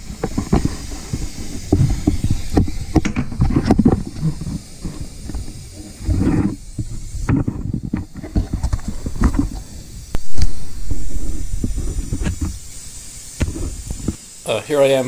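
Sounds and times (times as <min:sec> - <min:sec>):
air hose hissing: 0:00.0 - 0:15.0.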